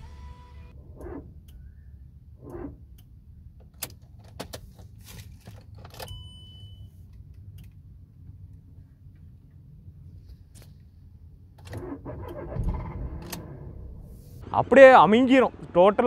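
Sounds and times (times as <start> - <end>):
ignition and starter clicks: 11.5 - 14.4.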